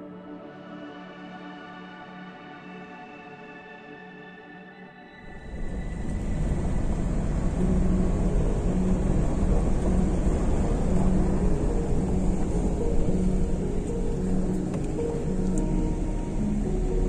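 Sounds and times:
car engine drone: 5.2s - 17.0s
faint hum: 5.3s - 17.0s
tyres on gravel road: 5.3s - 17.0s.

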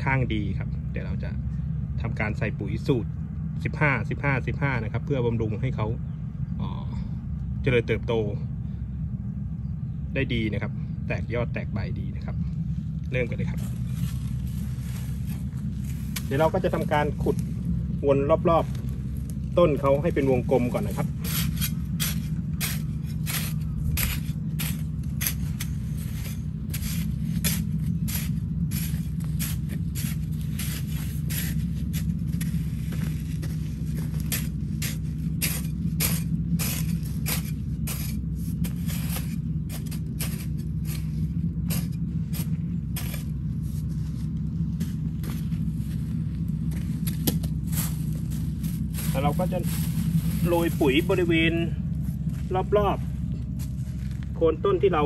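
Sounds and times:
low hum: 0.0s - 55.0s
hoe chopping and scraping soil: 13.6s - 17.7s, 18.4s - 52.4s.

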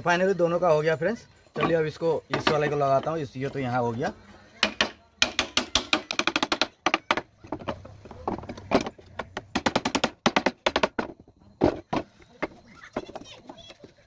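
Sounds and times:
hammer knocking wood: 2.3s - 3.1s, 4.6s - 13.2s.

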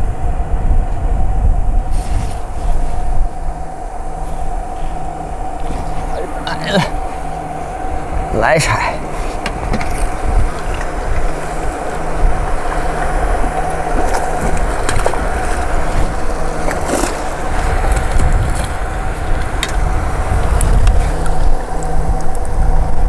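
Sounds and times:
steady hum: 0.0s - 23.0s
wind buffeting microphone: 0.0s - 23.0s.

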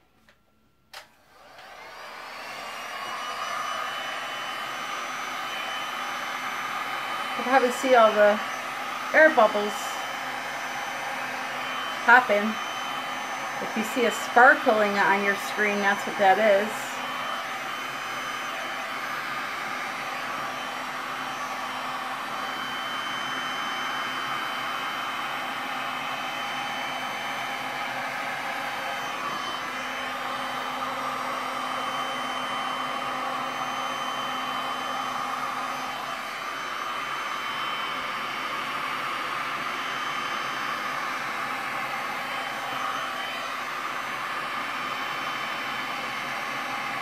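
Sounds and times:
heat gun fan blowing: 0.9s - 47.0s.

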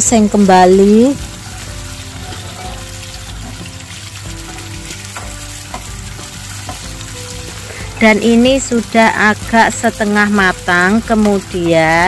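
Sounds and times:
shallots sizzling in hot oil: 0.0s - 12.0s.

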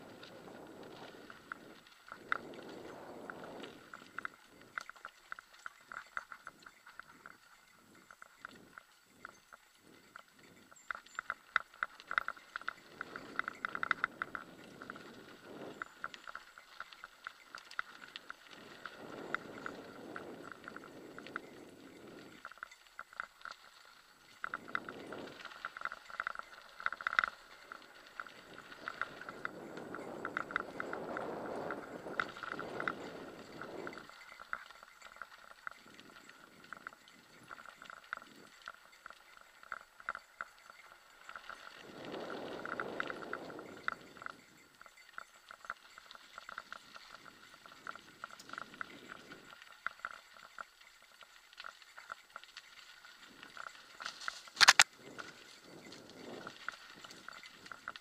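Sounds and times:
mountain bike rattling and ticking: 0.0s - 58.0s.

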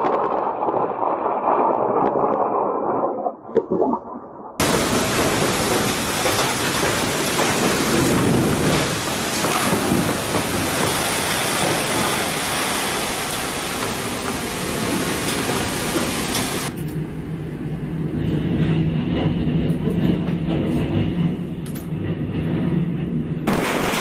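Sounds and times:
storm wind and heavy rain: 0.0s - 24.0s
low rumble: 16.8s - 23.6s.

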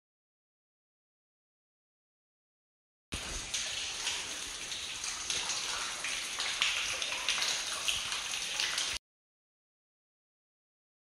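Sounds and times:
water splashing in a cave: 3.1s - 9.0s.

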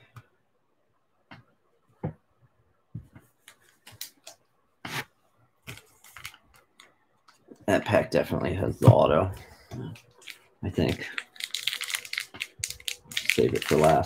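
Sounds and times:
cards and wrapper rustling: 5.6s - 6.9s, 10.0s - 14.0s.

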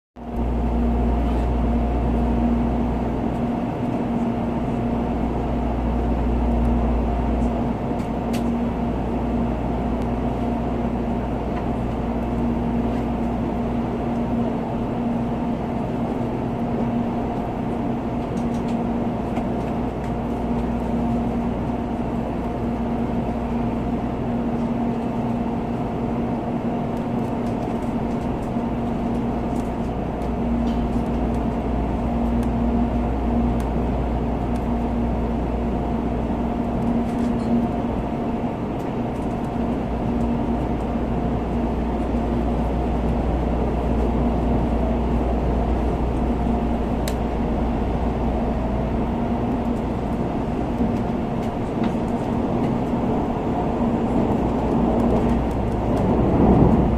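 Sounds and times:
train cabin hum: 0.2s - 56.9s
low rumble: 40.6s - 56.9s.

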